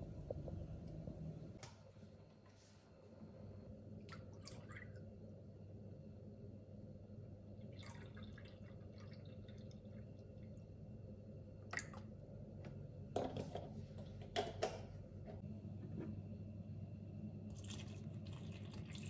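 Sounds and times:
low steady hum: 0:00.0 - 0:19.0
milk trickling into a bowl: 0:07.6 - 0:10.5, 0:17.5 - 0:19.0.

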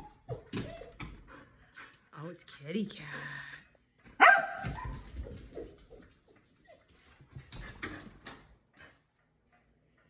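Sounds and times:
dog whimpering: 0:00.0 - 0:01.1, 0:03.6 - 0:07.0.

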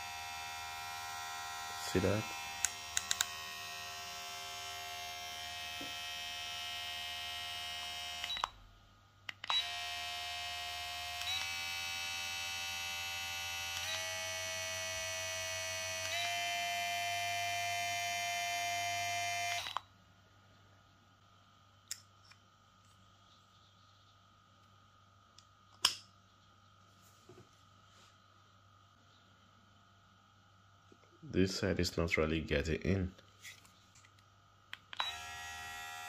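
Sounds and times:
hair clipper running: 0:00.0 - 0:08.5, 0:09.3 - 0:19.8, 0:34.9 - 0:36.0.

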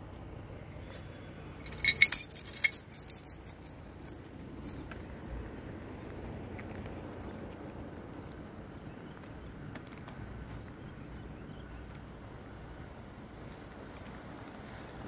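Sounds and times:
faint background noise: 0:00.0 - 0:15.0
metallic jingling and clinking: 0:01.6 - 0:05.0.

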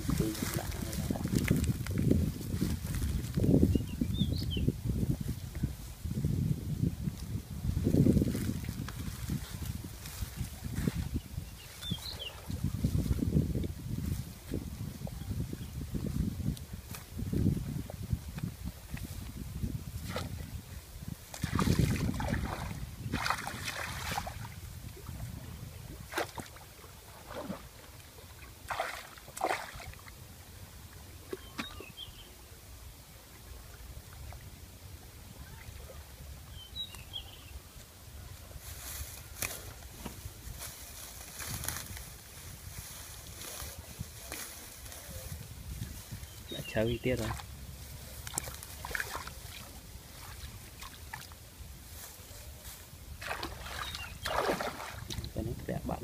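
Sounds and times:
reeds rustling in water: 0:00.0 - 0:04.1, 0:04.9 - 0:32.0, 0:38.5 - 0:55.4
wind rumble on microphone: 0:00.0 - 0:56.0
water splashing: 0:21.3 - 0:25.3, 0:25.9 - 0:30.2, 0:47.1 - 0:51.4, 0:53.2 - 0:55.5.

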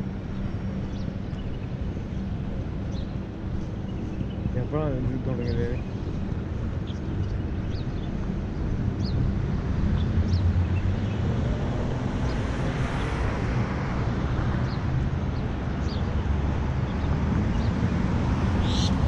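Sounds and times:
low rumble of traffic: 0:00.0 - 0:19.0.

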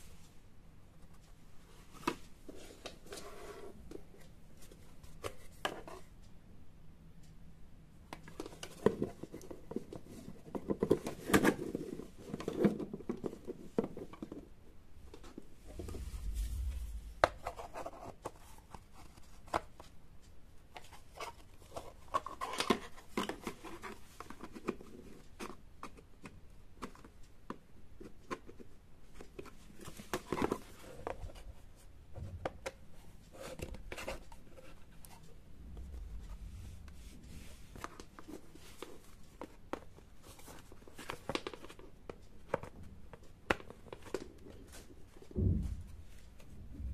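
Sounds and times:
dull low thump: 0:15.6 - 0:17.6, 0:35.6 - 0:37.5, 0:45.4 - 0:46.9.

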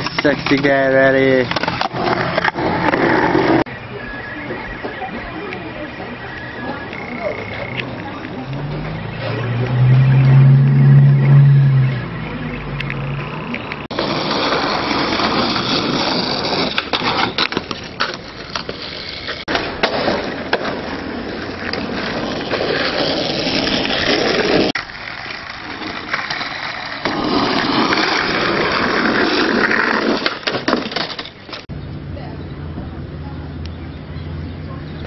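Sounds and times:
skateboard wheels rolling: 0:00.0 - 0:31.7
skateboard clacks: 0:12.8 - 0:31.6.

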